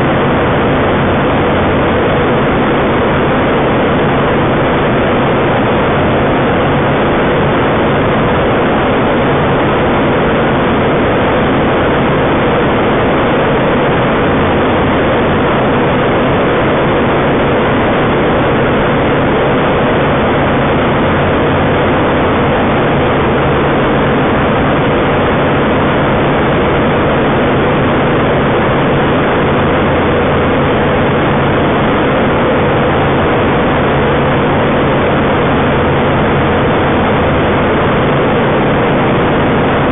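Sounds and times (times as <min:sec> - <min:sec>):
light aircraft engine and propeller: 0:00.0 - 0:39.9.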